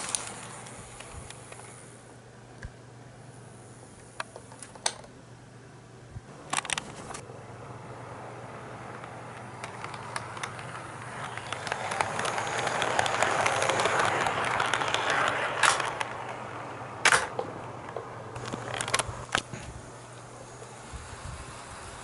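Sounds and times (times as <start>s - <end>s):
model train wheels rumbling: 0.0s - 2.0s, 6.4s - 22.0s
sharp clicks: 9.0s - 16.3s, 17.0s - 19.5s.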